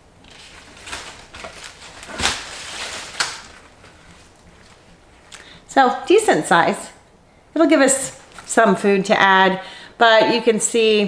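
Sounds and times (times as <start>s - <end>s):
cabbage leaves rustling and crunching: 0.3s - 3.7s.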